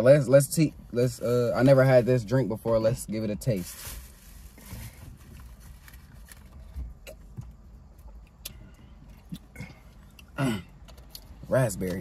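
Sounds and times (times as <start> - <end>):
low hum inside car: 0.0 - 12.0
sipping and swallowing: 7.0 - 11.4.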